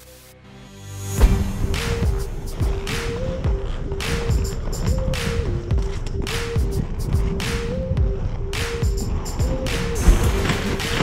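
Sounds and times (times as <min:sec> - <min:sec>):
heavy kick drums: 0:01.2 - 0:07.4, 0:08.0 - 0:08.2, 0:08.8 - 0:11.0.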